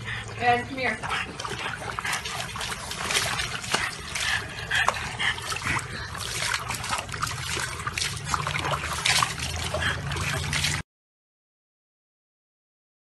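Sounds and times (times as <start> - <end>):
water splashing in a plastic tub: 0.0 - 10.8
water spilling over rim: 1.6 - 10.8.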